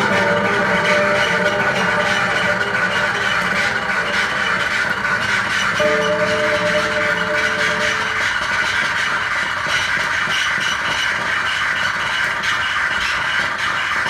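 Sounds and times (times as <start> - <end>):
held guitar tones: 0.0 - 9.2
scraping guitar noise: 0.0 - 10.1.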